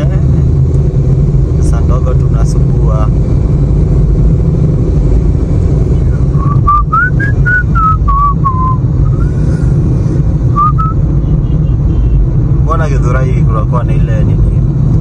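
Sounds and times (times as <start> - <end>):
car road and engine rumble: 0.0 - 15.0
person whistling a tune: 6.4 - 9.4, 10.6 - 11.0.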